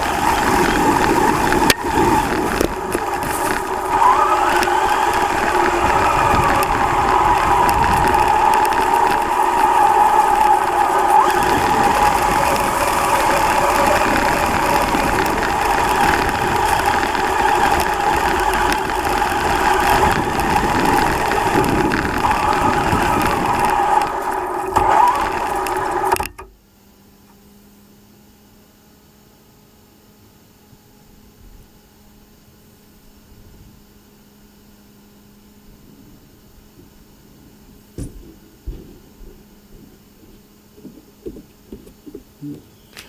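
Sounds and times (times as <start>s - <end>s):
rushing noise: 0.0s - 26.2s
electric motor whining: 0.0s - 26.3s.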